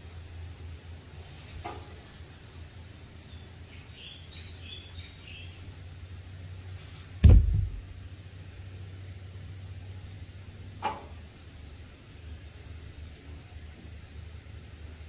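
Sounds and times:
low steady rumble: 5.2 - 15.0
camera bump thump: 7.2 - 7.9.

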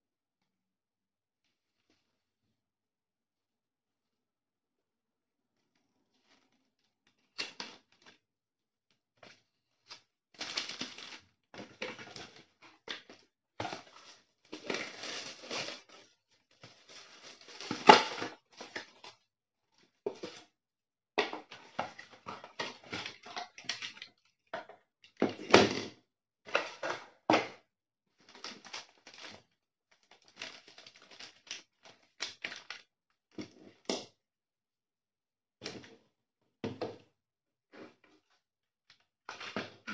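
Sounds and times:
paper packaging rustling: 13.7 - 16.1.

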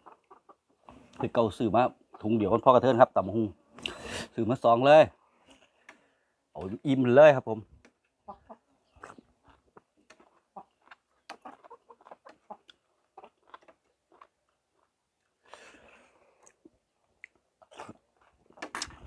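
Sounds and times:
faint chewing: 7.8 - 19.0.

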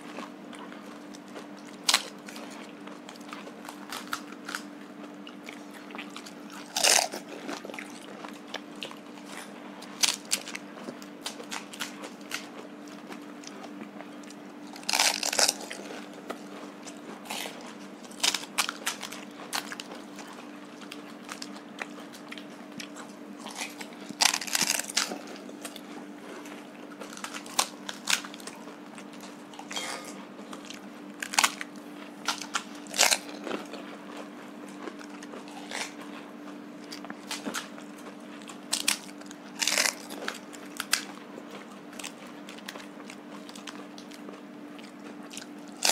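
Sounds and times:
crunching and chewing: 0.0 - 45.9
steady low hum: 0.0 - 45.9
crisp shells cracking: 6.6 - 7.2, 10.0 - 10.6, 14.7 - 15.8, 17.4 - 19.9, 23.5 - 25.4, 27.0 - 28.6, 31.2 - 33.5, 38.7 - 41.1.

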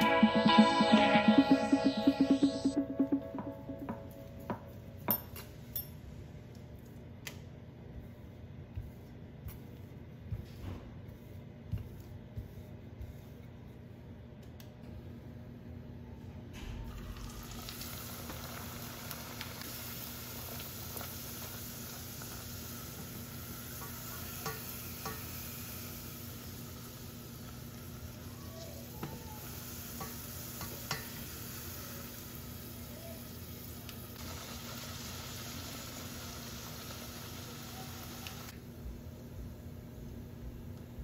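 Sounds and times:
food sizzling in hot oil: 16.9 - 28.3, 29.4 - 38.5.

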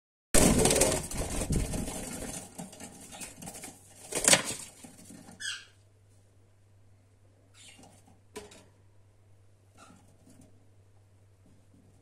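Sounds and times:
birds fluttering wings: 0.4 - 5.5
bird chirp: 5.4 - 5.8, 7.5 - 7.9.

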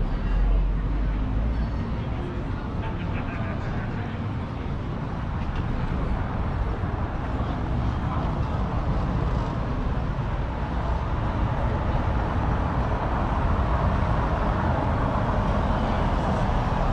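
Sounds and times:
car engine noise: 0.0 - 16.9
car tyres on cobbled road: 2.6 - 16.9.

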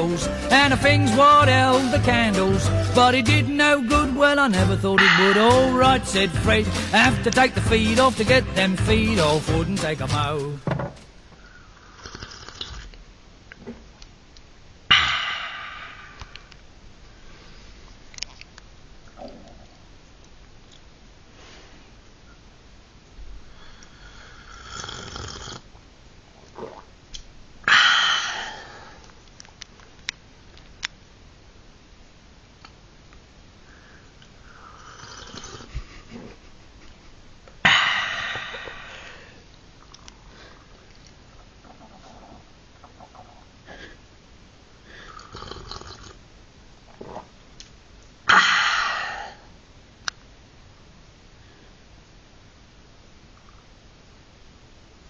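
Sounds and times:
breathy rush of air: 5.0 - 7.0, 14.9 - 16.6, 27.6 - 29.1, 37.6 - 39.5, 48.3 - 49.5
person slurping tea: 11.9 - 12.9, 26.5 - 26.9, 34.7 - 35.7, 45.1 - 46.2.

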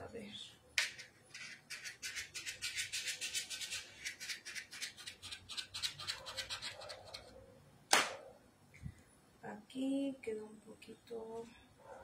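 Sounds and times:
quick scratching strokes: 1.4 - 7.3.

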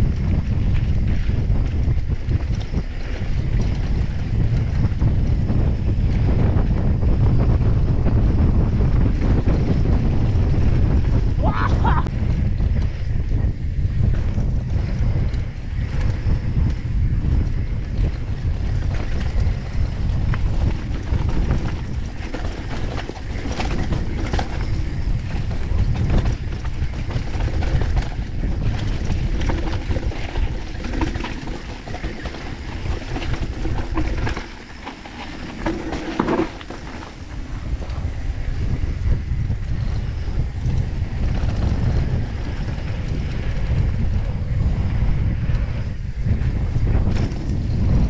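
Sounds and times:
bike clicks and rattles: 0.0 - 48.0
wind buffeting microphone: 0.0 - 48.0
tyres rolling on dirt: 18.0 - 38.5.

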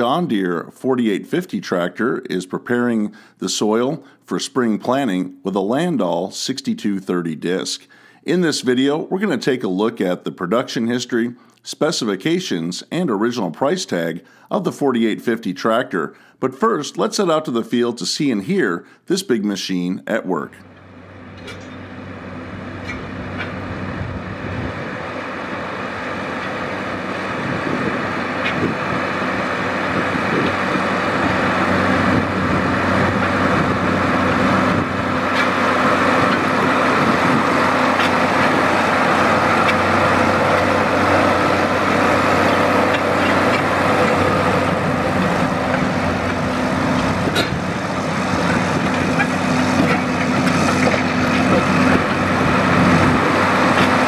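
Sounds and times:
tractor diesel engine under load: 0.0 - 4.2, 20.6 - 54.0.

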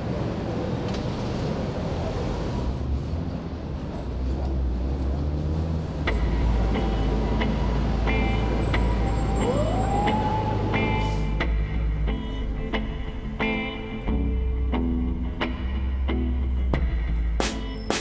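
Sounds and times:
traffic hum: 0.0 - 18.0.

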